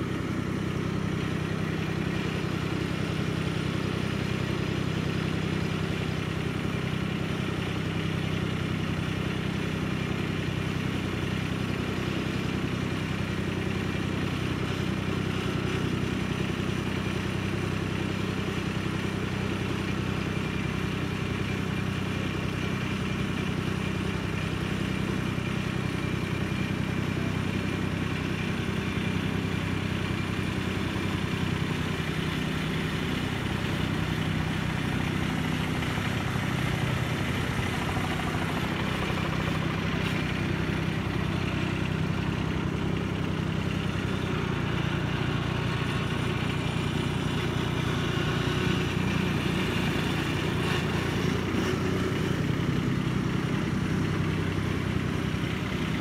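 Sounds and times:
small tractor engine running: 0:00.0 - 0:56.0.

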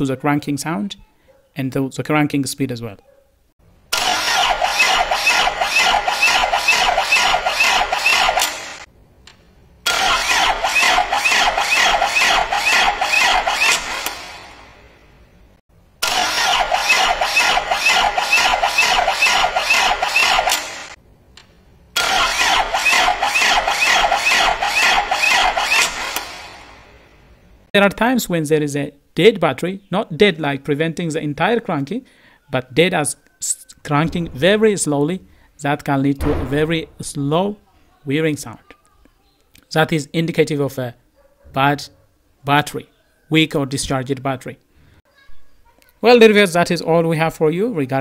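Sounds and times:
starter motor cranking engine: 0:03.9 - 0:08.9, 0:09.8 - 0:14.7, 0:16.0 - 0:21.0, 0:22.0 - 0:26.9.

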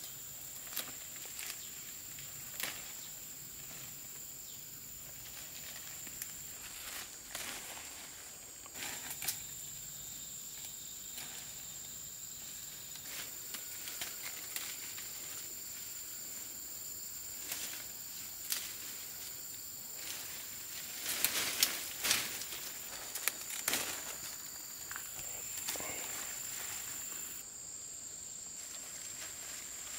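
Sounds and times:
high-pitched insect drone: 0:00.0 - 0:29.9
leaves rustling and snapping: 0:00.6 - 0:04.0, 0:05.2 - 0:09.5, 0:12.9 - 0:15.4, 0:17.3 - 0:19.3, 0:20.0 - 0:27.4.

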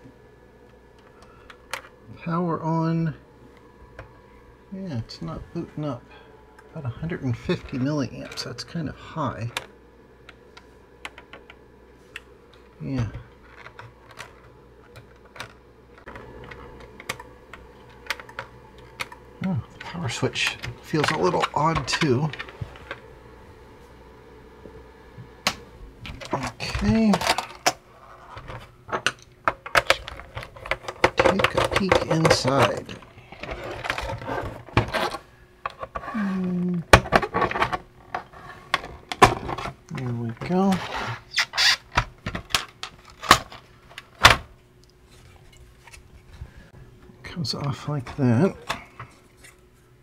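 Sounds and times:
faint steady hum: 0:00.0 - 0:50.0
plastic case rubbing and scraping: 0:30.2 - 0:35.2.

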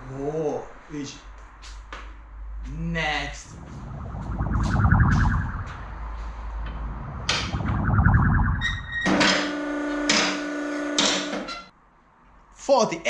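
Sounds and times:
loud steady squeal: 0:07.3 - 0:11.7.

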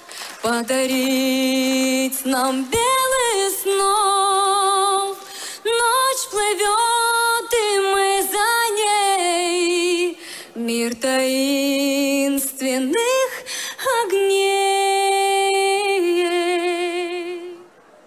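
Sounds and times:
woman singing a lullaby: 0:00.4 - 0:17.6
breaths between phrases: 0:05.2 - 0:05.6, 0:10.2 - 0:10.6.

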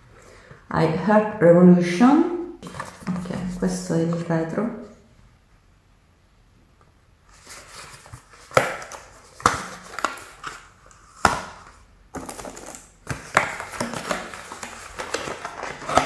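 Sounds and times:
cardboard carton rustling: 0:02.6 - 0:04.3, 0:07.3 - 0:11.2, 0:12.2 - 0:16.0
cardboard snapping: 0:08.4 - 0:10.6.

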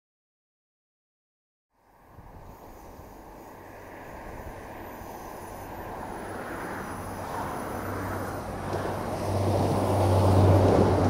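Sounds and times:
diesel train engine hum: 0:01.8 - 0:11.0
train wheel noise: 0:02.5 - 0:11.0.

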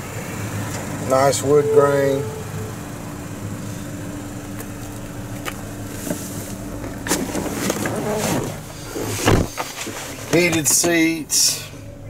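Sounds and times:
car cabin low hum: 0:00.0 - 0:12.0
thin steady tone: 0:01.1 - 0:03.8
handling clicks and rustles: 0:09.1 - 0:11.2.

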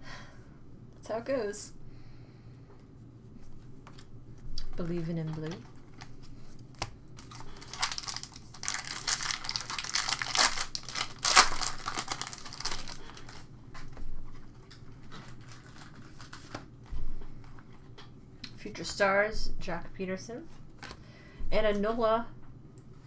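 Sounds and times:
plastic wrapper crinkling and tearing: 0:05.2 - 0:16.8.

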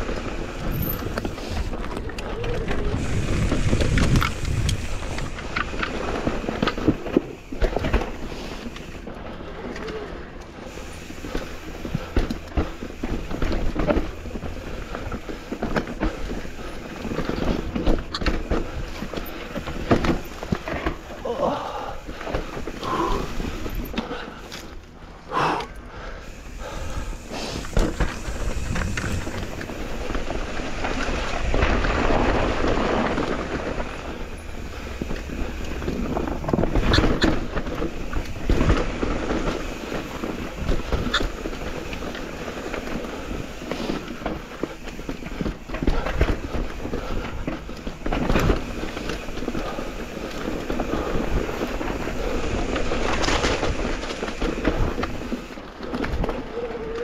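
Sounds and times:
bike tyres rumbling and rattling: 0:00.0 - 0:57.0
bike knocking over bumps: 0:11.1 - 0:24.8, 0:26.7 - 0:57.0.

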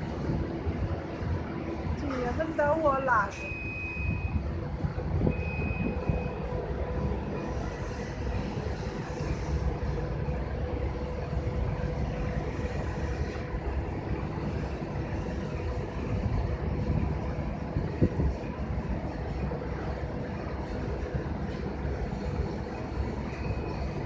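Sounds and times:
faint machine hum: 0:00.0 - 0:24.0
short high beep: 0:03.3 - 0:04.4
wind buffeting microphone: 0:04.0 - 0:07.2, 0:09.6 - 0:22.6.

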